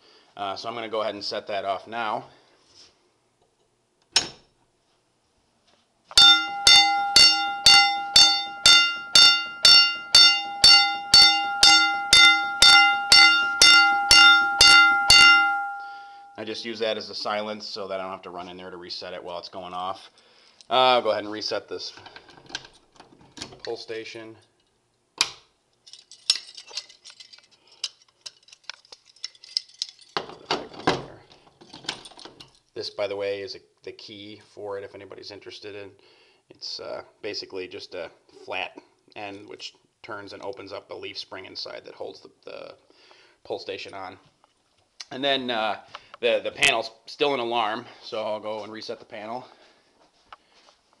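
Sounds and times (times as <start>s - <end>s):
handling noise: 6.1s - 17.4s
fire alarm bell ringing: 6.2s - 16.6s.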